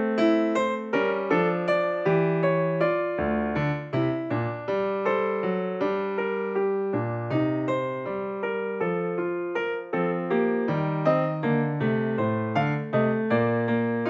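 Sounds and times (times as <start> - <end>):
keyboard music: 10.1 - 14.0.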